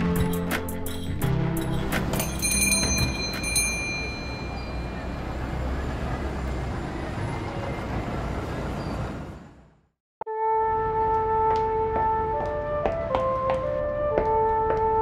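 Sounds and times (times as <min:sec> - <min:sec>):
rumble of passing cars: 0:01.6 - 0:09.9.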